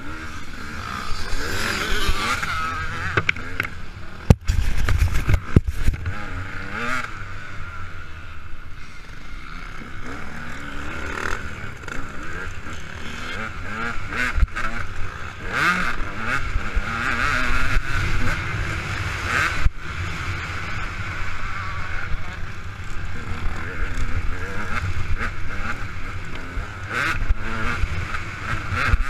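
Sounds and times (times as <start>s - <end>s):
motorcycle engine revving: 0.0s - 29.0s
wind rumble on microphone: 4.2s - 6.2s.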